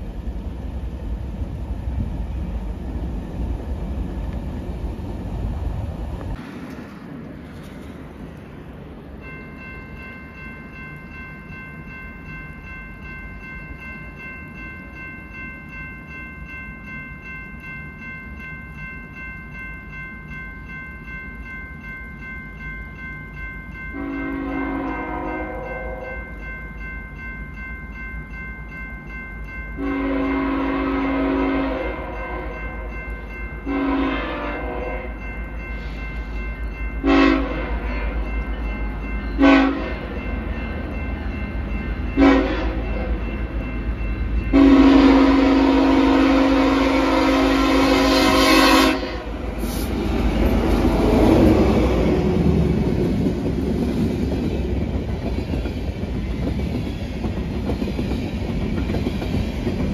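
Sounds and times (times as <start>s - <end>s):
train passing: 0.0s - 59.9s
locomotive air horn blasts: 24.0s - 26.1s, 29.8s - 32.5s, 33.7s - 35.1s, 37.0s - 37.9s, 39.4s - 40.0s, 42.2s - 42.8s, 44.5s - 49.7s.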